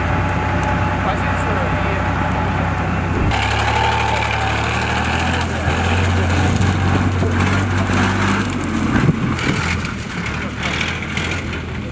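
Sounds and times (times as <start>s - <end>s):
truck engine humming: 0.0s - 11.9s.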